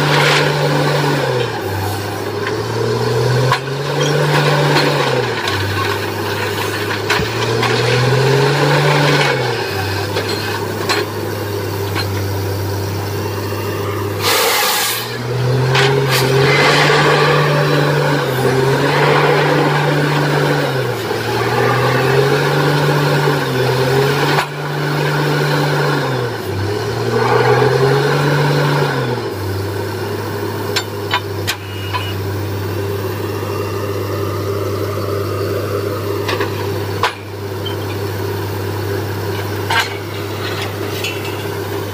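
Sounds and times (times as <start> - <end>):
diesel engine revving: 0.0 - 41.9
loud rush of noise: 13.4 - 24.0.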